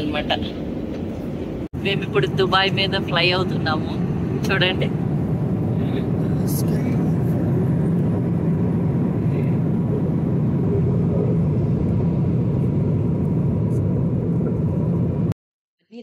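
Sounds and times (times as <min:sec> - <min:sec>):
airliner engine rumble and rushing air: 0:00.0 - 0:15.4.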